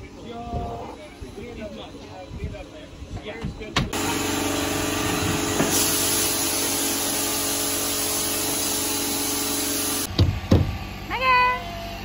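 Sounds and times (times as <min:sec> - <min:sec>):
machine motor running: 0:04.0 - 0:10.3.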